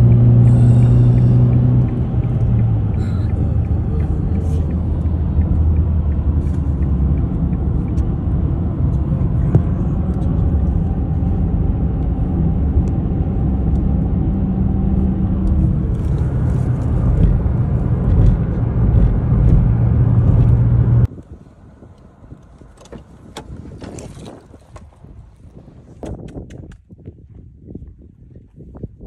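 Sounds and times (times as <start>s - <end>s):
car tyres and engine rumble: 0.0s - 29.0s.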